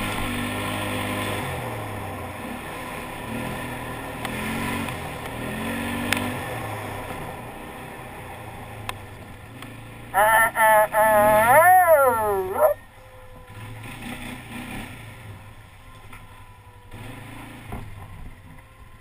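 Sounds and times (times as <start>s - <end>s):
quad bike engine revving: 0.0s - 12.8s, 13.5s - 15.3s
wind and tyre noise: 0.0s - 19.0s.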